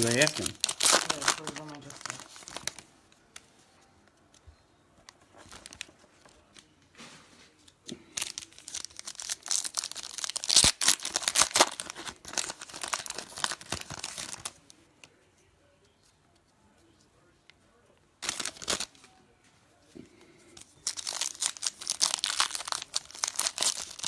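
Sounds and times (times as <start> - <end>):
foil wrappers tearing and crinkling: 0.0 - 2.8, 8.1 - 14.6, 18.2 - 19.0, 20.8 - 24.0.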